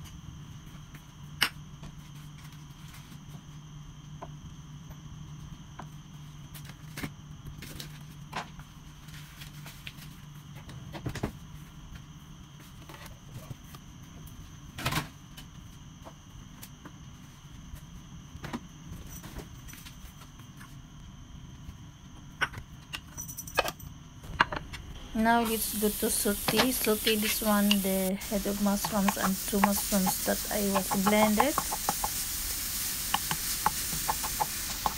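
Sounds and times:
steady low hum: 11.4 - 34.9.

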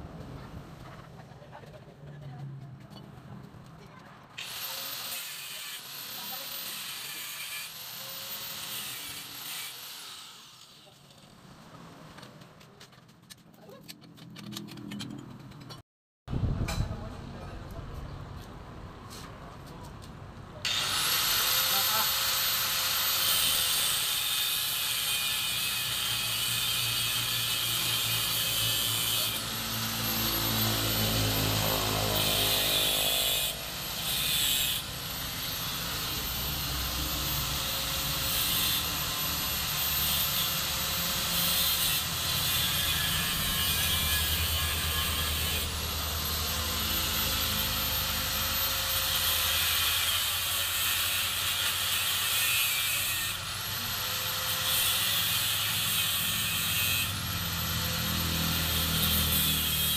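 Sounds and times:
power tool whining: 20.7 - 50.1.

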